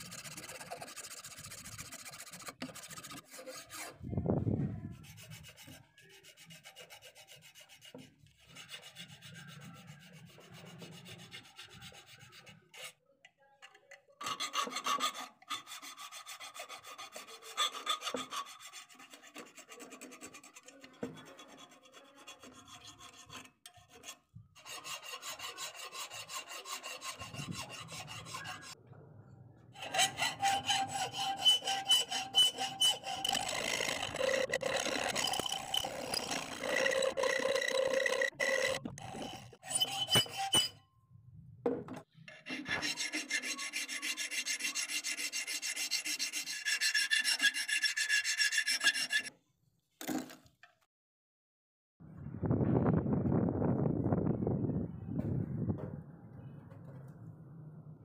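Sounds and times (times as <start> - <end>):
file rasping on steel: 0.0 - 4.1, 4.9 - 13.1, 14.2 - 28.8, 29.8 - 40.8, 42.2 - 49.3.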